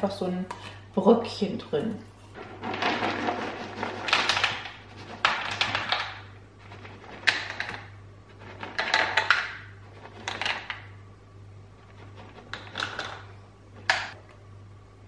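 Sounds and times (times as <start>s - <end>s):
dry kibble clattering into plastic bowls: 2.4s - 10.9s, 12.2s - 14.1s.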